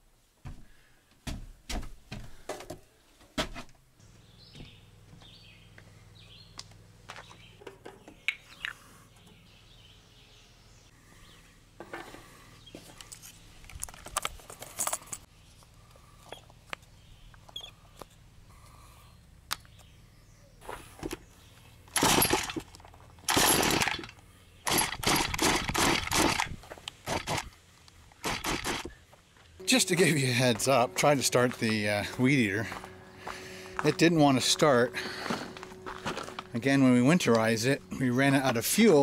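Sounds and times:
steady low hum: 3.9s - 39.0s
faint bird chirps: 15.4s - 20.6s.

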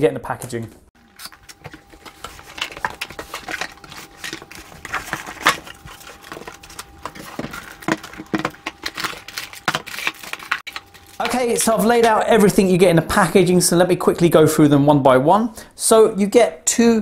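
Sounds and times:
cardboard and foam rustling: 1.4s - 12.2s.

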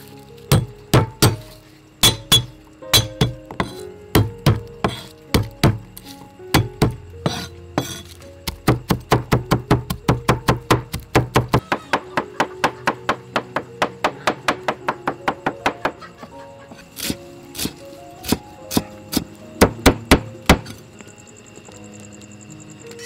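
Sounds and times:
background music: 0.0s - 23.0s
cleaver chopping on wooden board: 0.5s - 5.8s, 6.6s - 13.6s.

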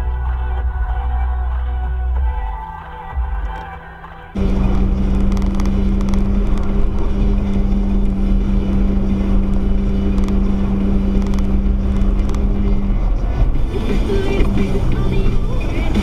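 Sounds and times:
car engine drone: 0.0s - 16.0s
road and tyre rumble: 3.4s - 16.0s.

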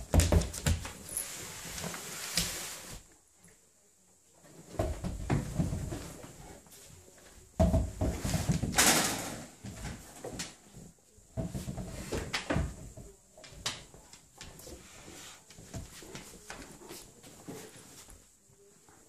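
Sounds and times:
dog paws on hardwood floor: 0.0s - 3.0s, 9.6s - 19.0s.

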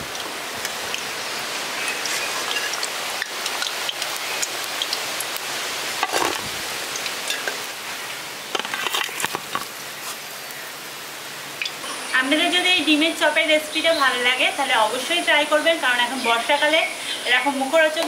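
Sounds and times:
oil sizzling: 0.0s - 10.7s
utensil scraping pan: 6.0s - 6.4s.

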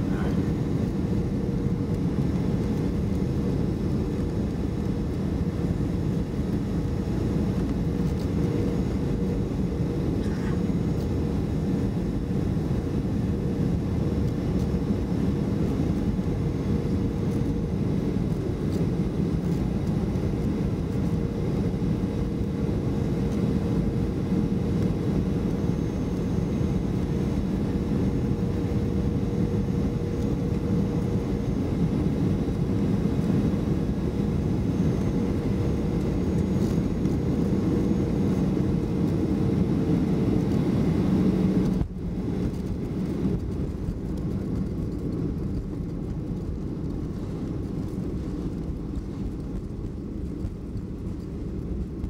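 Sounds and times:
airplane cabin engine rumble: 0.0s - 52.0s.

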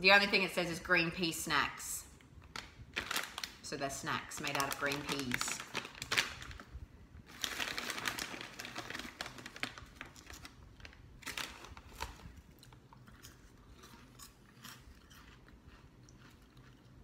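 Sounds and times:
plastic snack bag rustling: 2.6s - 16.7s
snack sticks crunching: 11.6s - 17.0s.

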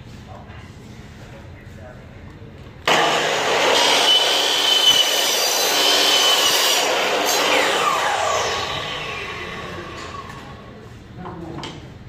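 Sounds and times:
miter saw motor running: 2.9s - 10.6s
saw blade spinning down: 2.9s - 10.7s
high ringing screech of cutting metal: 3.8s - 8.0s.

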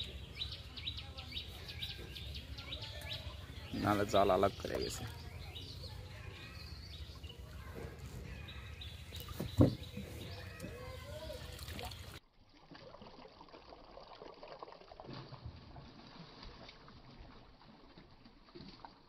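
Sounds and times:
water trickling and dripping: 9.0s - 19.0s.

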